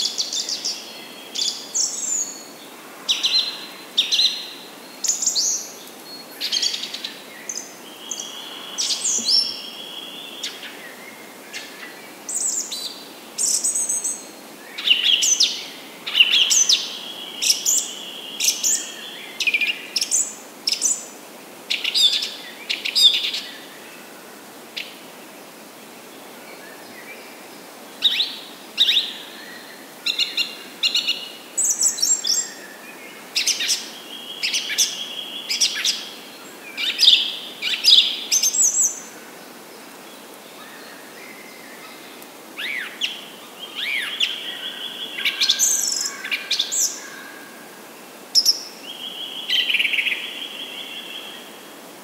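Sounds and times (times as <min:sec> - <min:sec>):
songbirds chirping: 0:00.0 - 0:52.0
steady background hiss: 0:00.0 - 0:52.0.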